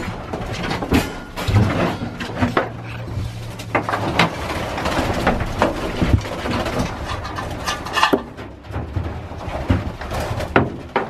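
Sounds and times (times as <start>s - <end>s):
low steady hum: 0.0s - 11.0s
quail fluttering and scrambling: 1.6s - 8.5s.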